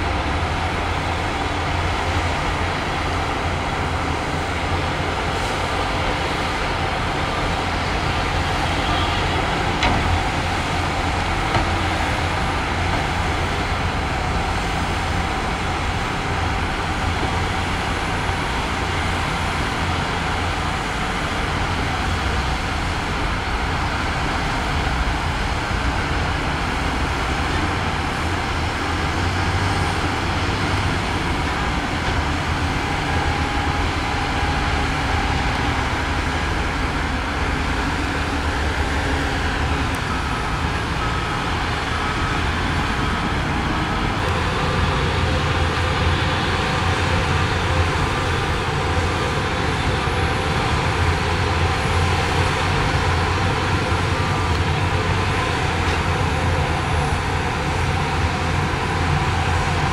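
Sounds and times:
heavy diesel machinery rumbling: 0.0s - 59.9s.

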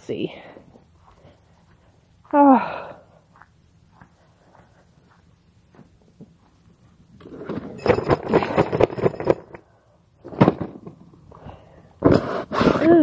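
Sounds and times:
camp chair frame rattling: 7.2s - 9.6s.

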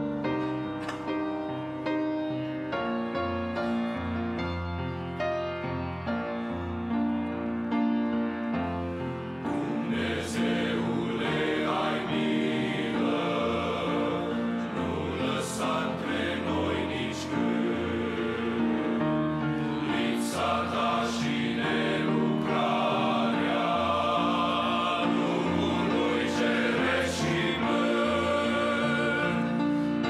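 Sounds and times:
grand piano: 0.0s - 30.0s
men's choir singing: 9.3s - 30.0s.

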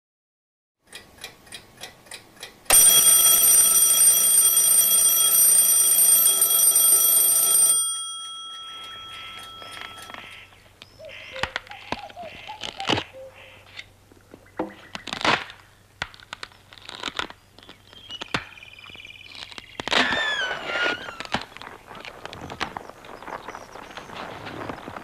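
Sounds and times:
alarm clock ticking: 0.9s - 10.5s
alarm clock ringing: 2.7s - 10.4s.

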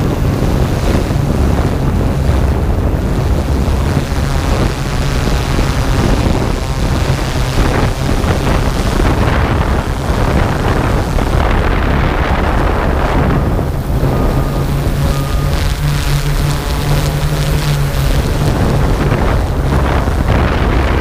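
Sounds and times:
drone propellers humming: 0.0s - 21.0s
wind on microphone: 0.0s - 21.0s
faint short beeps: 14.0s - 17.2s.

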